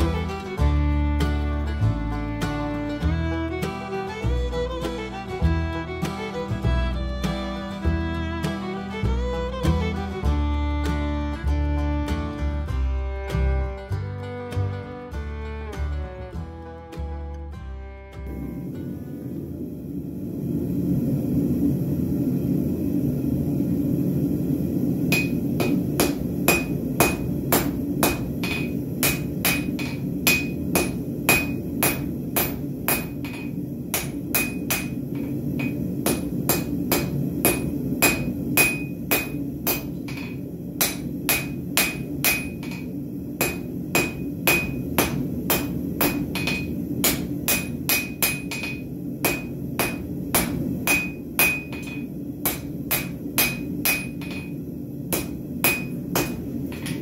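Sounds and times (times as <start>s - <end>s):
steady low rumble: 0.0s - 57.0s
hammer striking metal on anvil: 25.1s - 57.0s.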